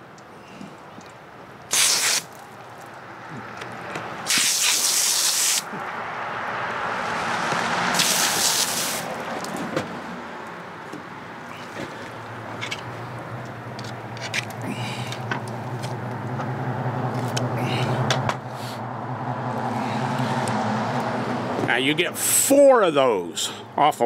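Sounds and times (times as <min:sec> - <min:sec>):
hose nozzle spraying: 0:01.7 - 0:02.4, 0:04.2 - 0:05.7, 0:08.0 - 0:09.1
water wash noise: 0:04.2 - 0:05.8, 0:06.8 - 0:09.7.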